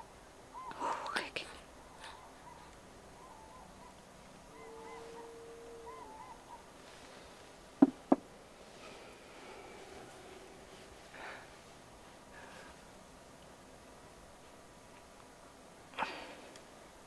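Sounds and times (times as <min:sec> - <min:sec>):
sharp knocks: 0:07.8 - 0:08.2.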